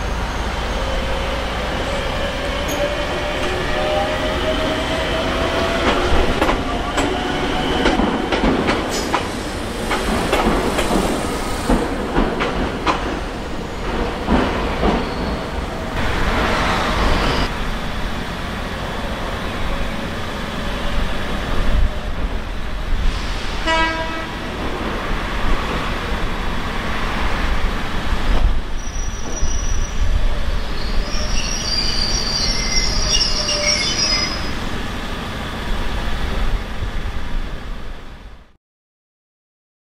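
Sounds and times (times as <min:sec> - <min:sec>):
train wheels clacking over rail joints: 0:07.8 - 0:13.2
train horn toot: 0:23.6 - 0:24.5
high wheel squeal: 0:28.8 - 0:30.1, 0:30.7 - 0:34.8.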